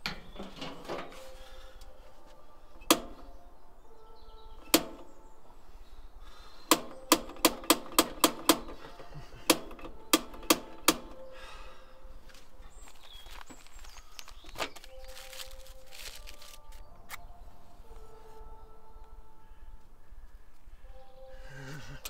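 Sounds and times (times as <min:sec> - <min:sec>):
sharp metallic clicks: 0:02.8 - 0:03.3, 0:04.6 - 0:05.2, 0:06.7 - 0:11.3.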